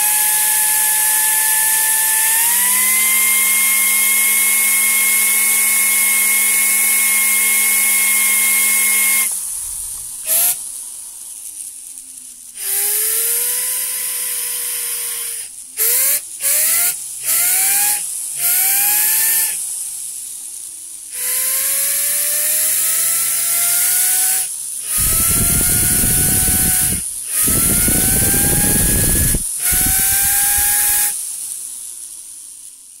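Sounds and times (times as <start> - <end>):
air-driven rotary engine whine: 0.0 - 32.7
compressed air hiss: 8.5 - 33.0.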